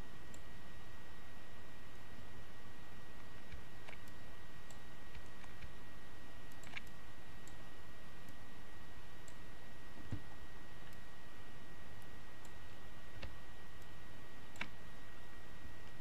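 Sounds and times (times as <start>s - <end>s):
computer mouse clicks: 0.3s - 0.5s, 3.2s - 5.8s, 6.5s - 7.6s, 9.2s - 9.4s, 14.5s - 14.8s.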